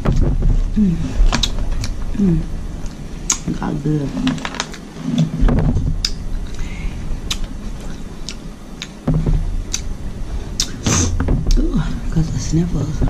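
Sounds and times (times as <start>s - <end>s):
low rumble: 0.0s - 13.0s
wet chewing and lip-smacking: 2.8s - 3.5s, 7.2s - 9.0s, 10.6s - 10.9s.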